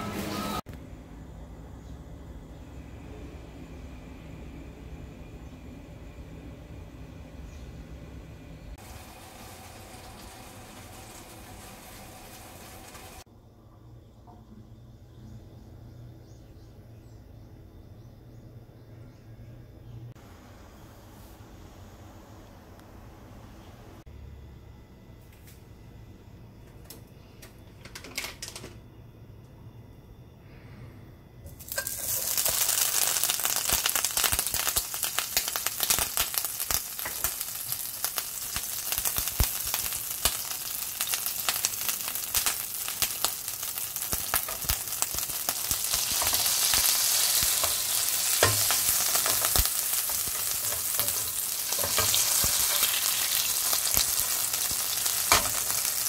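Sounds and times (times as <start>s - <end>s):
butter sizzling in a frying pan: 8.8s - 13.2s, 31.5s - 56.0s.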